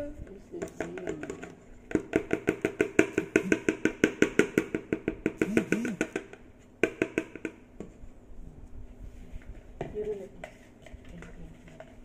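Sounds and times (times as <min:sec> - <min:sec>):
utensil tapping mixing bowl: 0:00.2 - 0:07.6.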